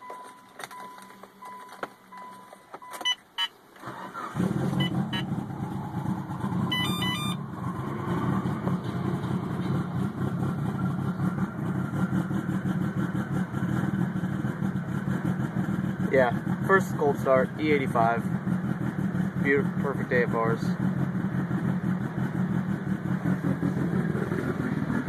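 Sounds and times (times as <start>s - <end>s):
car engine starting and idling: 0.0s - 25.0s
pulsing warning chime: 4.7s - 5.4s, 6.7s - 7.6s.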